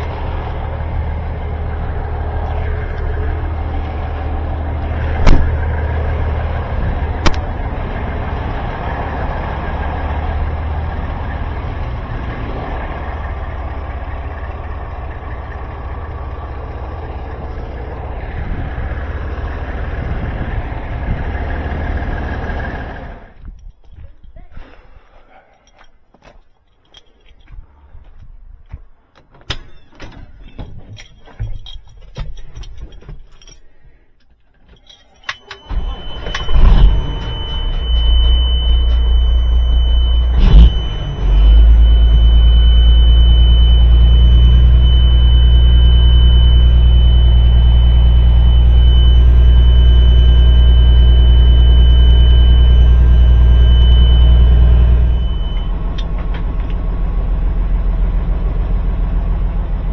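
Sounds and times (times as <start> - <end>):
rattling and clicking: 0.0 - 8.2, 25.4 - 35.6
diesel truck engine starting and running: 0.0 - 33.8, 34.7 - 59.9
high-pitched tone: 35.4 - 55.9.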